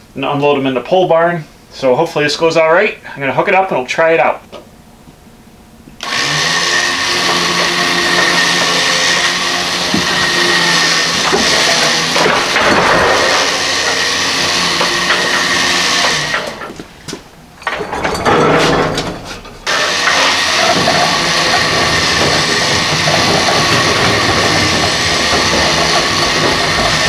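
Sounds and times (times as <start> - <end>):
electric winch motor running: 6.0 - 16.8, 17.6 - 27.0.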